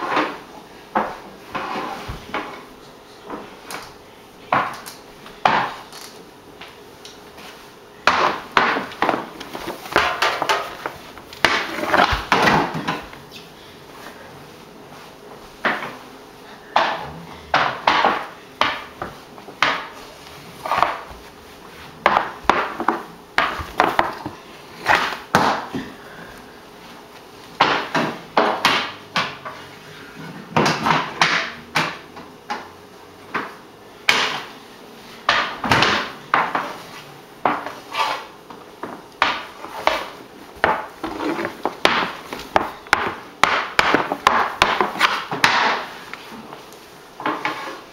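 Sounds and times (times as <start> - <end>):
hockey stick clacking on wooden floor: 8.1 - 13.2, 16.8 - 20.0, 20.6 - 21.2, 22.0 - 25.9, 27.6 - 29.6, 30.6 - 32.7, 35.3 - 36.8, 37.4 - 45.9, 47.2 - 47.8.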